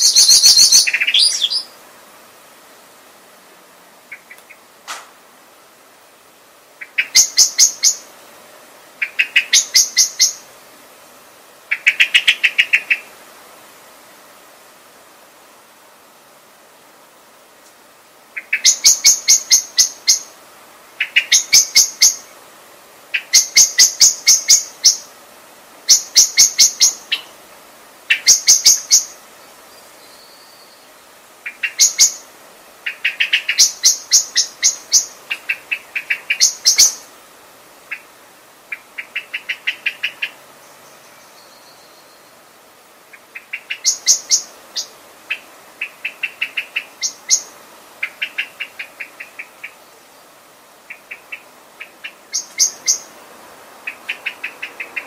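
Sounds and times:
blackbird calling: 0:00.0 - 0:01.8, 0:04.1 - 0:04.7, 0:06.8 - 0:08.1, 0:09.0 - 0:10.5, 0:11.7 - 0:13.1, 0:18.3 - 0:20.4, 0:21.0 - 0:22.3, 0:23.1 - 0:25.1, 0:25.9 - 0:27.4, 0:28.1 - 0:29.2, 0:30.0 - 0:37.1, 0:37.8 - 0:42.4, 0:43.1 - 0:50.2, 0:50.8 - 0:53.2, 0:53.8 - 0:55.0.

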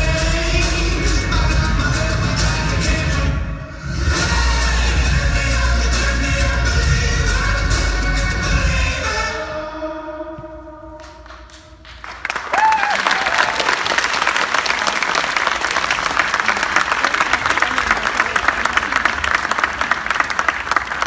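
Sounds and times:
audience applause: 0:11.8 - 0:21.0
audience cheering: 0:12.2 - 0:21.0.

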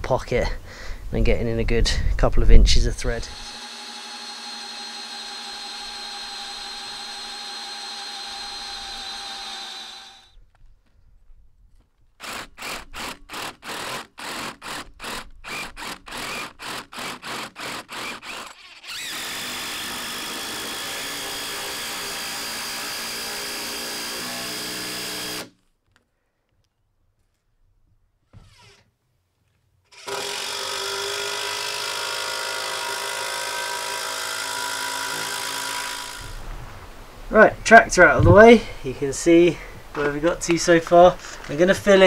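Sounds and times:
power drill driving screws: 0:03.2 - 0:10.3, 0:12.2 - 0:25.6, 0:28.3 - 0:28.8, 0:29.9 - 0:36.4.

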